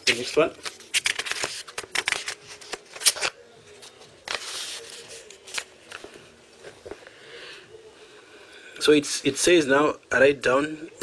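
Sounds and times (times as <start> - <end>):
paper rustling: 0.0 - 7.0.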